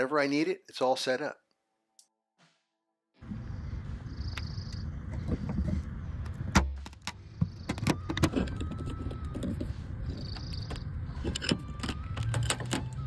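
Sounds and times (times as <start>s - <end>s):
metal tools clicking and knocking: 10.2s - 13.0s.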